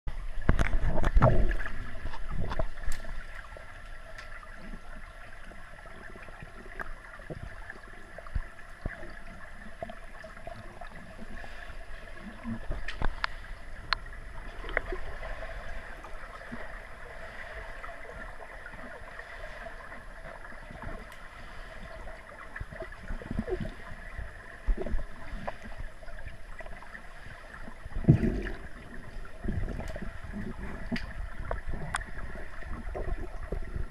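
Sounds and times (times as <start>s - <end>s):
underwater hiss and hum: 0.1s - 33.9s
water splashing and gurgling: 0.1s - 33.9s
water sloshing: 0.2s - 33.9s
faint clicks: 2.0s - 4.7s, 12.7s - 15.0s, 30.8s - 32.2s.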